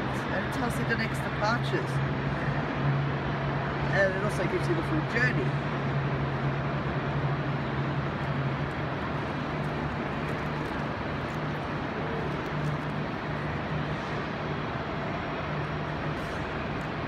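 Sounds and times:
low drone: 5.4 - 17.0.

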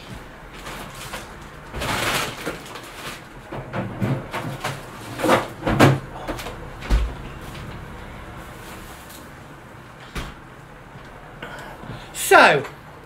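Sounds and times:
freezer knocks and rustles: 0.0 - 7.9, 10.1 - 10.4
freezer door thumping shut: 6.8 - 7.2.

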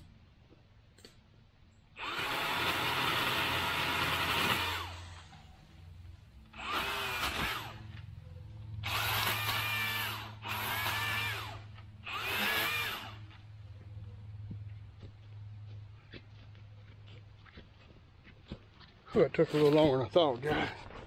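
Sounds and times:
pole saw motor whining: 2.0 - 5.8, 6.5 - 13.4.

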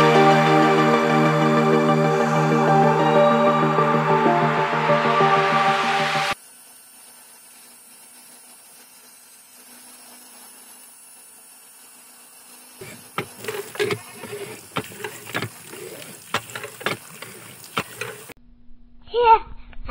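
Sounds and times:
water pump motor humming: 12.8 - 18.4.

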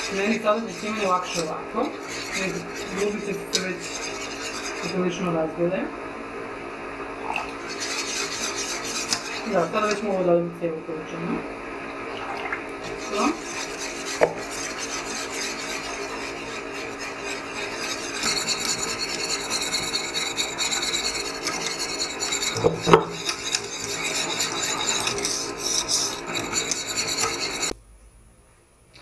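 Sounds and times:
whisk scraping in a metal saucepan: 0.0 - 5.2, 7.6 - 10.4, 12.8 - 27.8.

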